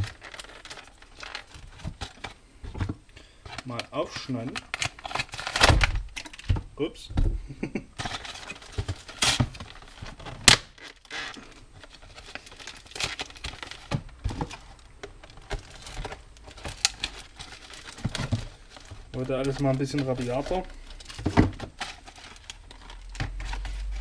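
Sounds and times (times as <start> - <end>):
packaging crinkling and tearing: 0.0 - 2.4, 3.5 - 6.5, 8.0 - 24.0.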